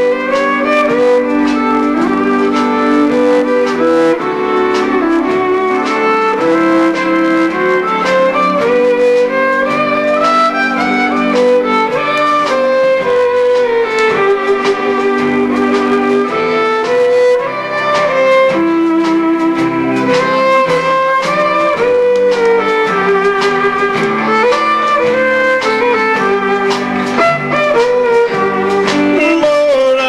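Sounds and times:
country band playing: 0.0s - 30.0s
acoustic rhythm guitar: 18.8s - 30.0s.

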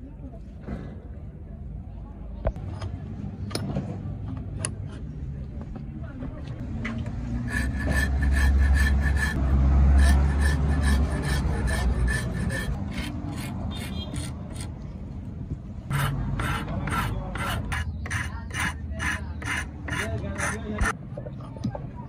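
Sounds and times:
file rasping on wood: 7.2s - 14.7s, 15.9s - 21.0s.

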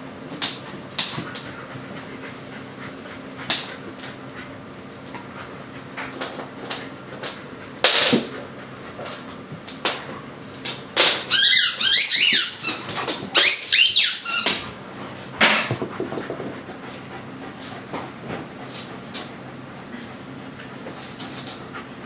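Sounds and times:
rubber squeaky toy squeaking: 11.3s - 12.8s, 13.4s - 14.6s.

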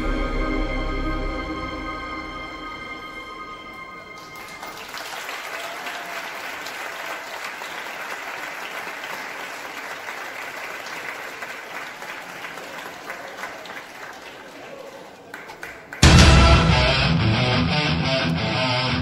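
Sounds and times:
audience applauding: 4.2s - 16.2s.

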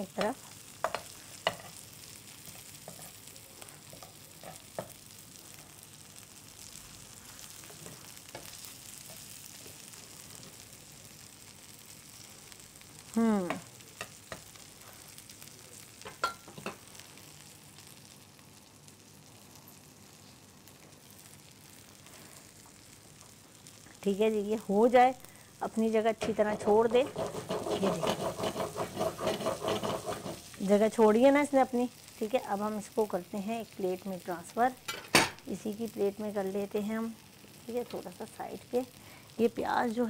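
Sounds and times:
omelette sizzling in pan: 0.0s - 40.0s
metal spatula scraping pan: 26.2s - 30.6s.

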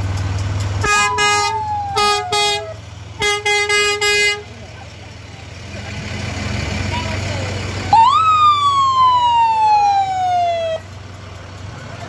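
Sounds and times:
fire engine engine running: 0.0s - 12.0s
siren wailing: 0.8s - 2.8s, 7.9s - 10.8s.

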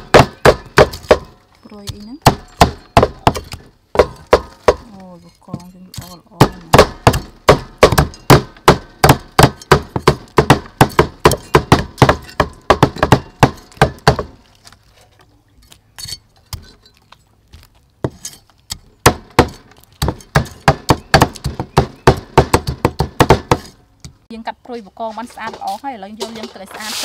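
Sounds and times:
cleaver chopping on wooden board: 0.0s - 4.9s, 6.0s - 14.4s, 18.8s - 23.8s.

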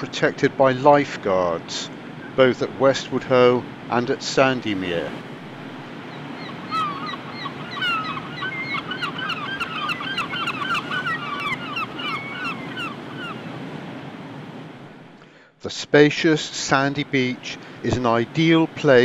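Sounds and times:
surf rushing: 0.0s - 15.2s, 16.2s - 19.0s
wind: 0.0s - 19.0s
birds honking chatter: 5.9s - 13.6s.

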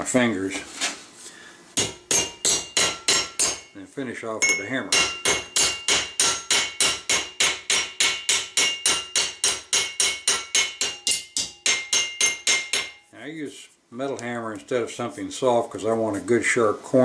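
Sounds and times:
hammer tapping on metal: 1.8s - 3.7s, 4.4s - 13.1s.

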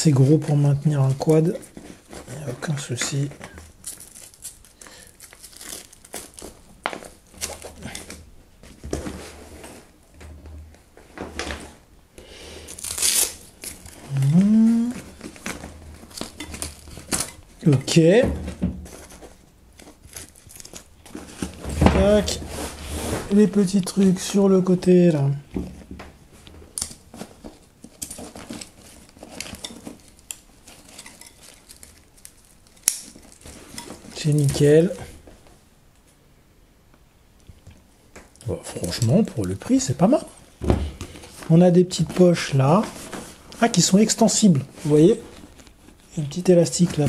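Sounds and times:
nylon fabric rustling: 12.8s - 24.7s, 38.7s - 47.0s.

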